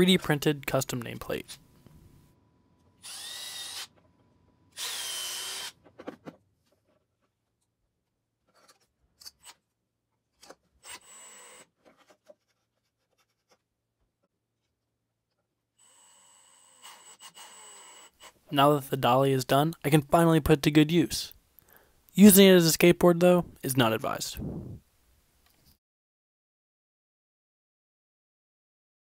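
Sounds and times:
cordless driver driving screws: 3.0s - 3.9s, 4.8s - 5.8s.

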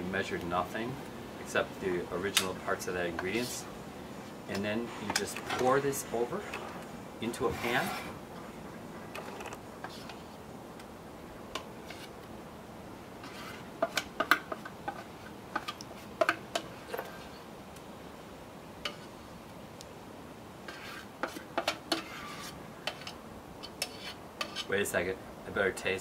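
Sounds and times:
utensil scraping metal bowl: 4.5s - 8.2s, 9.1s - 10.4s, 11.8s - 12.1s, 13.2s - 17.5s, 20.6s - 24.8s.

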